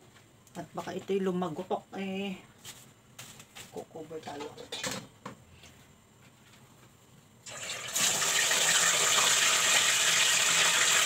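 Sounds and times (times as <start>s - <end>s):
oil sizzling in a pot: 7.4s - 11.0s.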